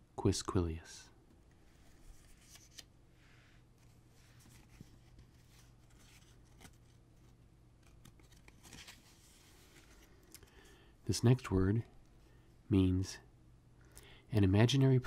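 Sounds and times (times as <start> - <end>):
paper cards rustling and sliding: 1.6 - 3.0, 3.8 - 10.7.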